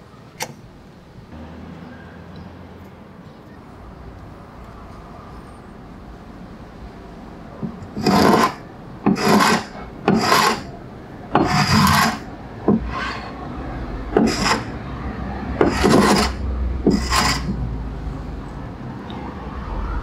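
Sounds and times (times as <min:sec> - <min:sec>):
cabinet scraper rasping on wood: 0:07.6 - 0:10.7, 0:11.3 - 0:13.4, 0:14.1 - 0:14.8, 0:15.6 - 0:17.6.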